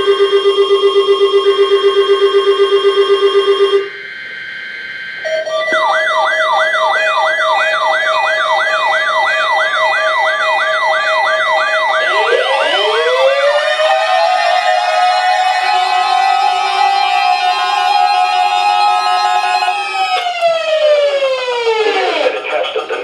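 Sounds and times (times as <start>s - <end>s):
wailing siren-like tone: 0.0s - 22.4s
buzzy pulsing alert tone: 0.2s - 14.4s
sliding falling tones: 5.0s - 22.3s.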